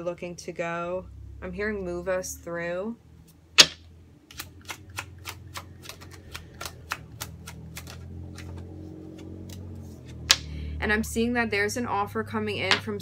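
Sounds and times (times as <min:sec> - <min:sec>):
cards being shuffled by hand: 0:04.3 - 0:10.5.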